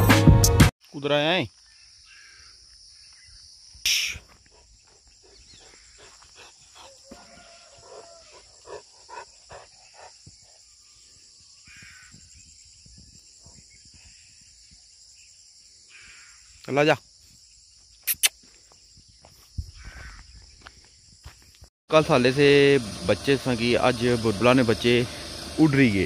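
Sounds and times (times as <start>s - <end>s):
insects chirring: 0.9s - 26.0s
faint bird chirps: 1.5s - 8.4s, 9.8s - 21.5s
loud short bird call: 3.9s - 4.3s.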